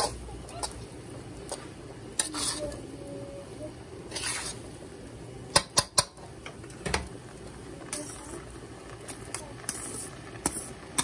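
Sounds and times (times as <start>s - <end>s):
spoon scraping rice in wok: 0.0s - 2.8s, 4.0s - 4.7s, 9.1s - 11.0s.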